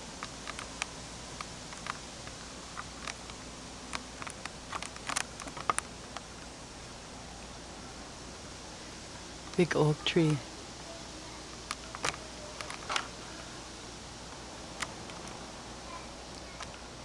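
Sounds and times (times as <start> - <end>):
steady hiss: 0.0 - 17.0
light clicks and ticks: 0.1 - 6.5.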